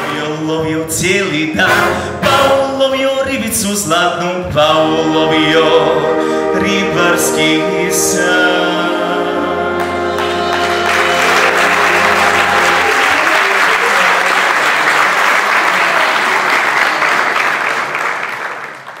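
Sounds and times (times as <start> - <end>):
wind band holding final chord: 7.7 - 13.2
audience applauding: 9.8 - 19.0.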